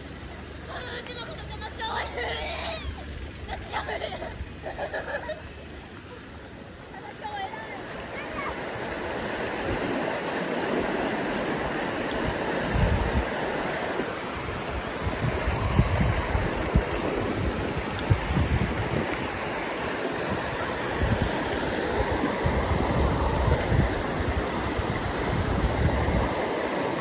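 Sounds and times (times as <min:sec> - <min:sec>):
stream rushing over rocks: 0:06.5 - 0:27.0
wind buffeting microphone: 0:06.9 - 0:27.0.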